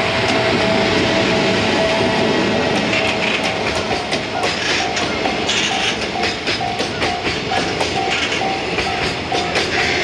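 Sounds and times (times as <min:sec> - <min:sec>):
level-crossing warning bell: 0:00.0 - 0:10.0
train wheels rolling on rails: 0:00.0 - 0:10.0
wheels knocking on rail joints: 0:02.4 - 0:10.0.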